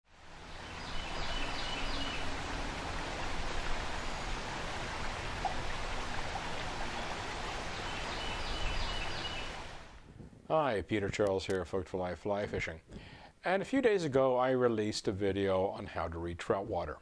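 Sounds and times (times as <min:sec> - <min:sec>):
creek water running: 0:00.1 - 0:12.8.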